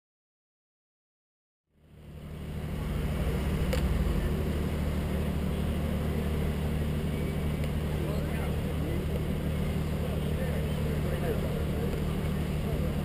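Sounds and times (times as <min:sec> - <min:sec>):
outdoor street noise: 0:01.7 - 0:13.0
low mechanical hum: 0:01.8 - 0:13.0.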